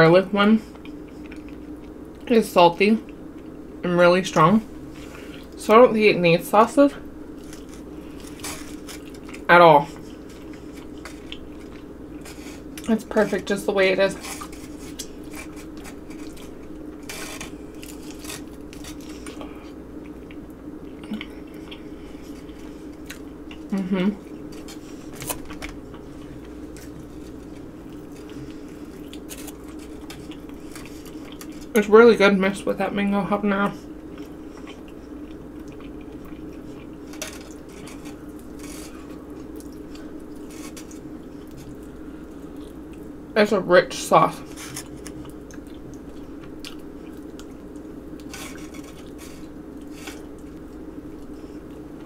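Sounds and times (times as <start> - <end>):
steady low hum: 0.0 - 52.0
person chewing: 0.7 - 2.2, 7.3 - 12.9, 14.1 - 31.8, 33.9 - 43.2, 44.4 - 52.0.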